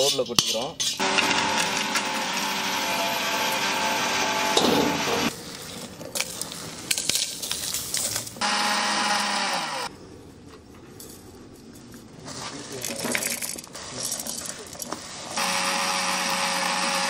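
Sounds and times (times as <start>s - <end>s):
mixer grinder humming: 1.0s - 5.4s, 8.4s - 9.9s, 15.3s - 17.0s
spices rattling in steel jar: 12.8s - 14.9s.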